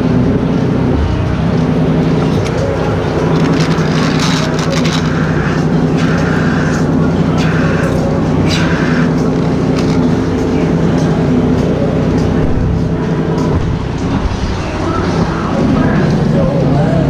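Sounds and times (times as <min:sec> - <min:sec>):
milking machine hum: 0:00.0 - 0:17.0.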